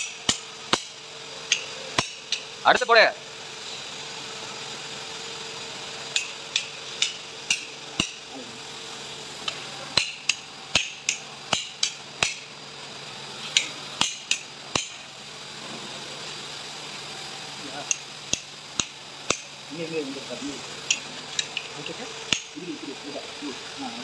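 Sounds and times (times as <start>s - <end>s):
hammer tapping on metal: 0.0s - 2.5s, 6.1s - 8.2s, 10.0s - 12.5s, 13.6s - 15.0s, 17.9s - 19.5s, 22.3s - 22.6s.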